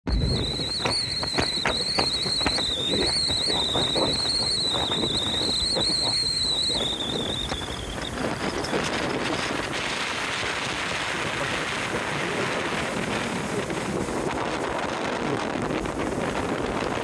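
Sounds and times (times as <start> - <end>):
wind noise on microphone: 0.0 - 17.0
water slapping against hull: 0.1 - 10.5
steady high whine: 0.1 - 16.9.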